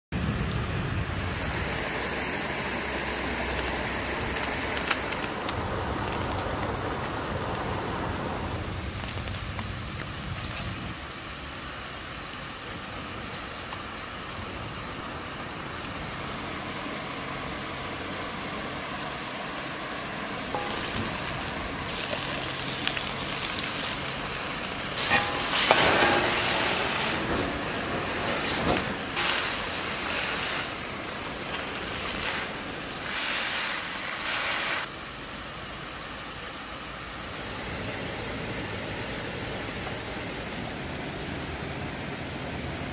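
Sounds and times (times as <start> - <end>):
food sizzling: 2.5 - 11.5, 20.4 - 34.9
wok clattering: 20.6 - 22.2, 25.0 - 30.0.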